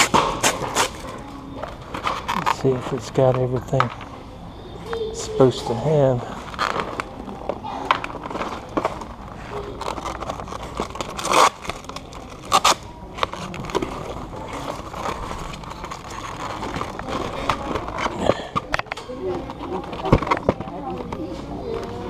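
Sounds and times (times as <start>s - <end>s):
rustling packaging: 0.0s - 4.1s, 5.6s - 22.0s
loud packaging crinkles: 6.4s - 7.2s, 8.2s - 18.2s.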